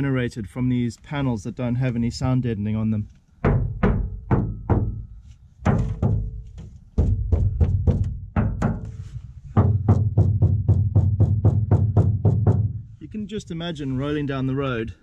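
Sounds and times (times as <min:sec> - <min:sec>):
fist knocking on steel van panel: 0:03.4 - 0:12.8.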